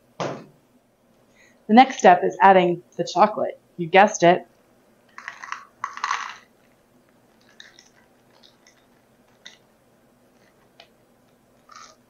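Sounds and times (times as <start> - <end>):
chocolate chips dropping into cup: 5.1 - 6.5
plastic bag crinkling: 5.1 - 9.7, 10.3 - 12.0.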